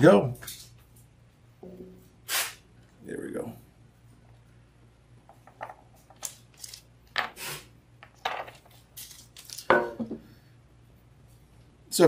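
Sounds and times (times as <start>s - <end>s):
wires rustling: 8.1s - 9.7s.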